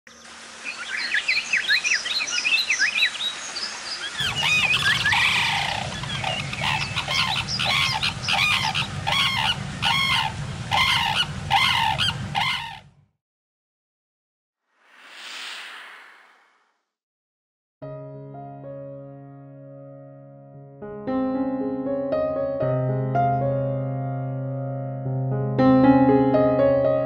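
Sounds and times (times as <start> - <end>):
small birds chirping: 0.1 - 12.8
cranes trumpeting: 4.2 - 12.9.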